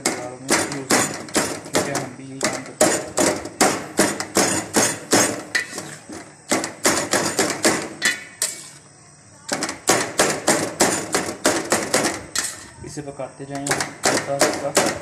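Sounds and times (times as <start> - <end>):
spatula knocking on metal pan: 0.0 - 5.8, 9.5 - 12.6, 13.6 - 15.0.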